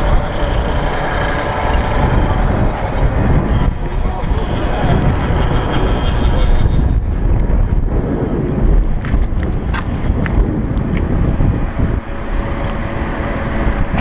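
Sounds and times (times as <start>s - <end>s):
low rumble and buffeting: 0.0s - 14.0s.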